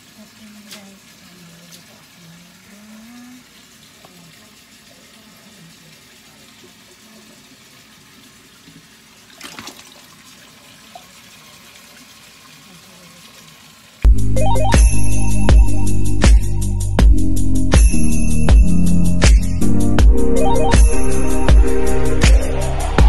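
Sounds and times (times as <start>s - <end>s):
running water from tap: 0.0s - 14.1s.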